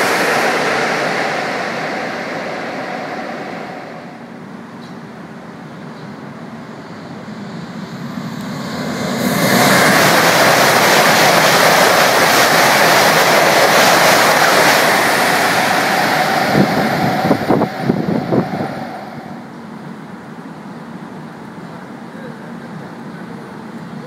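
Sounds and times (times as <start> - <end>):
high-speed train passing: 0.0 - 24.0
wind buffeting microphone: 9.3 - 19.4.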